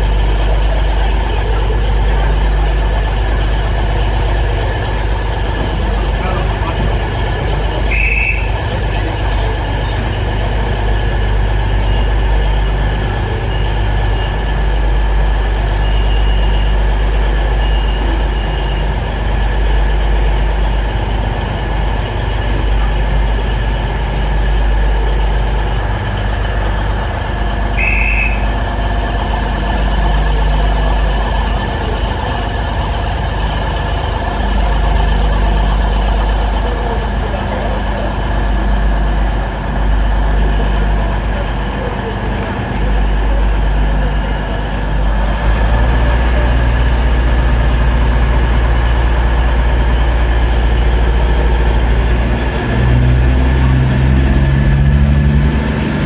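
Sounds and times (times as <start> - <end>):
diesel train engine idling: 0.0 - 56.0
short high blip: 27.8 - 28.5.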